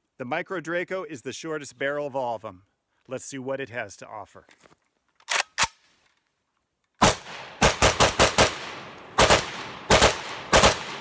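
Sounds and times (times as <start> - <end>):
gunshots with echo: 7.0 - 11.0.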